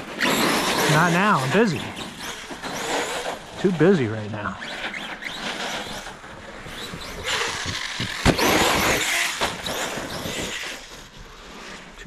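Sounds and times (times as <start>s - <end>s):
rc truck rushing through snow: 0.0s - 12.0s.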